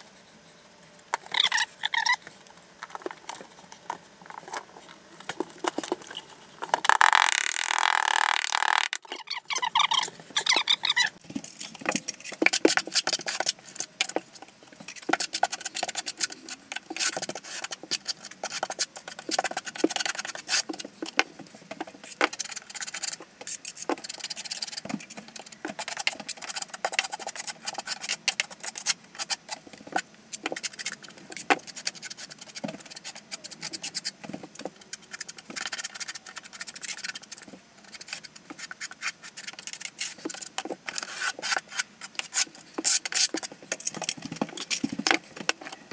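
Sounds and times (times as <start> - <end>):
trowel scraping mortar: 37.9 - 43.9.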